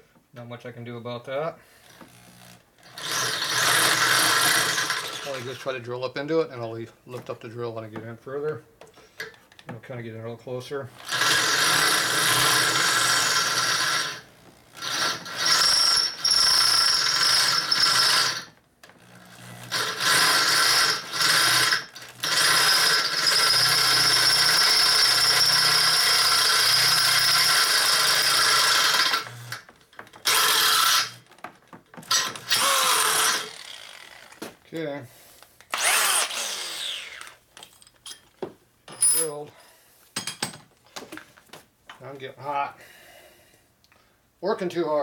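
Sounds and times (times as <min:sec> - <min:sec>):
electric drill boring into metal: 0:01.8 - 0:05.6, 0:10.9 - 0:31.3, 0:32.0 - 0:34.4, 0:35.7 - 0:37.4.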